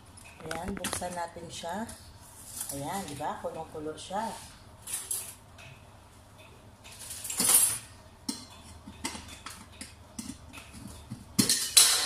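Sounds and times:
kettle and utensils clattering: 6.9 - 12.0.

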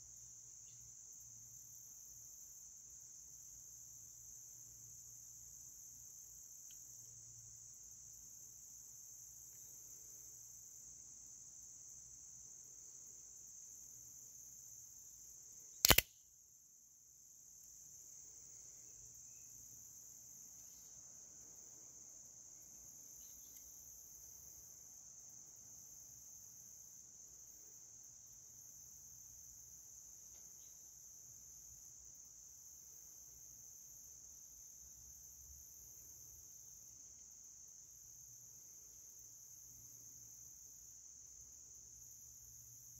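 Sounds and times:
insects chirring: 0.0 - 42.9
switchblade snapping open: 15.8 - 16.1.

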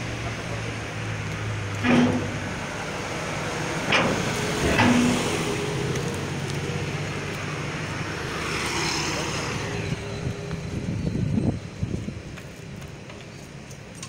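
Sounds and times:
heavy diesel vehicle idling: 0.0 - 8.2.

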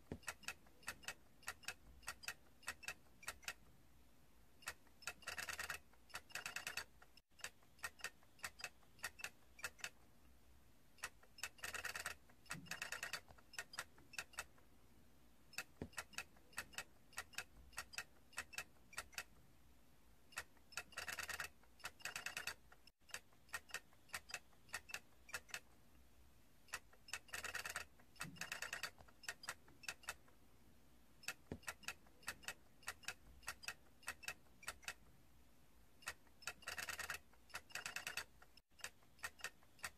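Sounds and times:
faint irregular clicking: 0.0 - 3.8, 4.5 - 14.8, 15.4 - 19.5, 20.2 - 30.4, 31.1 - 35.2, 35.9 - 39.9
rapid clicks: 4.6 - 10.1, 11.0 - 14.6, 20.3 - 25.8, 26.7 - 30.4, 36.0 - 39.9.

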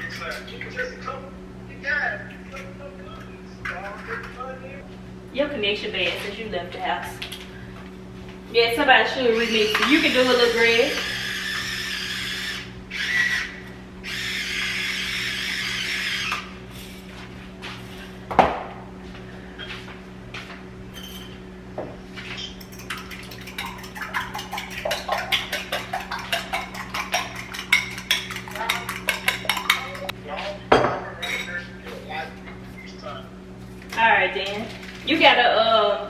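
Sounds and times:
fork beating eggs in glass bowl: 22.4 - 30.1.

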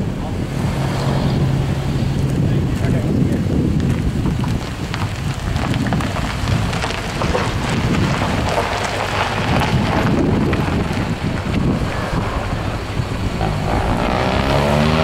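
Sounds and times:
wind buffeting microphone: 0.0 - 15.0
faint crackles: 2.1 - 14.0.

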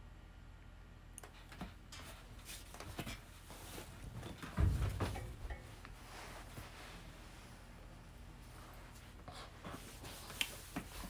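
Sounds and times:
dull thump: 4.4 - 5.7.

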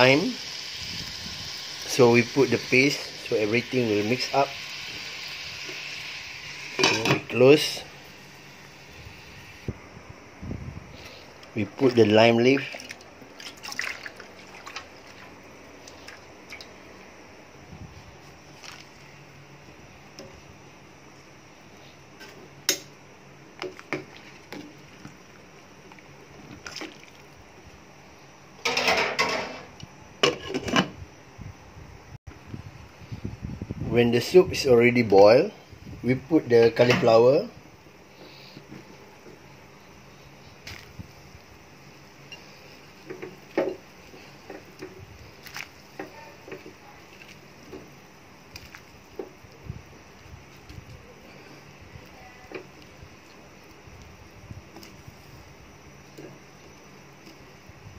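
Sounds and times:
liquid sloshing: 11.8 - 16.8, 23.8 - 27.4, 45.3 - 45.8.

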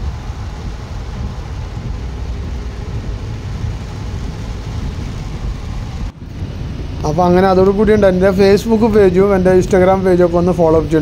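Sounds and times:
car engine and road rumble: 0.0 - 11.0
rain and wet tyres hissing: 0.0 - 11.0.

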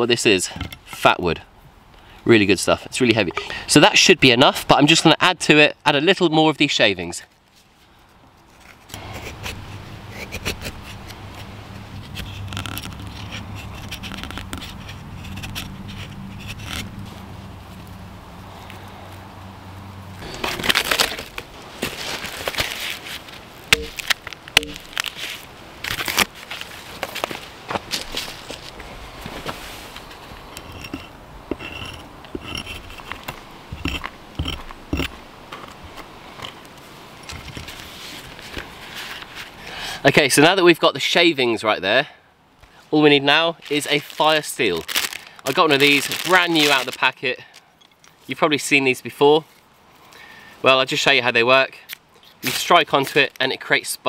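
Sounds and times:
hatchet scraping wood shavings: 8.5 - 17.2, 29.4 - 36.6.

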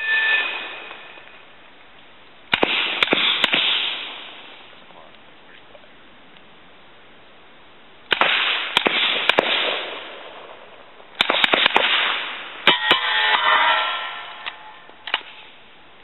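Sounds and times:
suppressed gunshots: 2.5 - 4.5, 8.1 - 10.6, 11.2 - 12.9.

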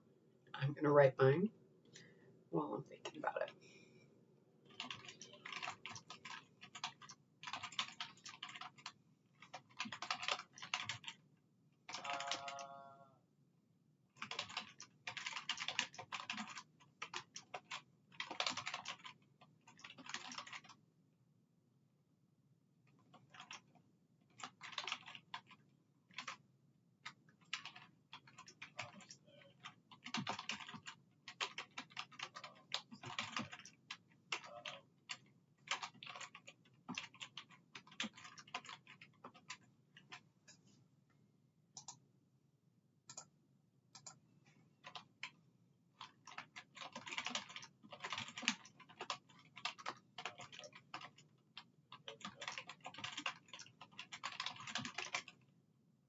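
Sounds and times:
typing on computer keyboard: 4.7 - 11.2, 11.9 - 12.7, 14.2 - 20.8, 23.0 - 26.4, 27.0 - 40.2, 44.8 - 45.4, 46.0 - 55.4.

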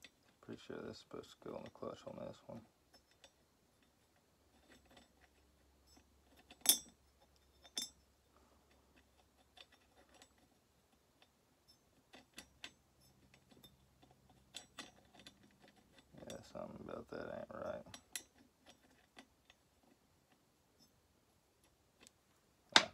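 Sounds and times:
metal parts clicking and clinking: 2.9 - 16.9, 17.6 - 21.0.

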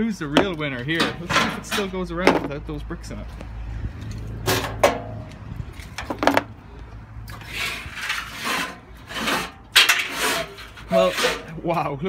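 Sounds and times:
metal drum scraping against tub: 7.3 - 11.6.

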